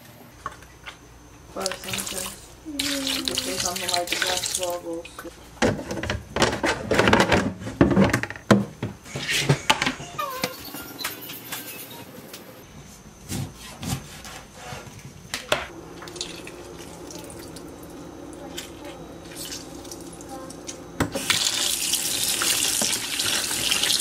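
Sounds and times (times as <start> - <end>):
tap water running into bowl: 1.6 - 5.3, 15.9 - 24.0
kitchen knocks and clatters: 5.2 - 12.0.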